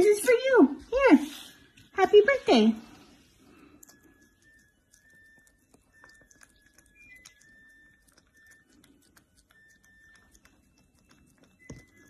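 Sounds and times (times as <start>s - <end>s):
dog licking: 3.8s - 12.0s.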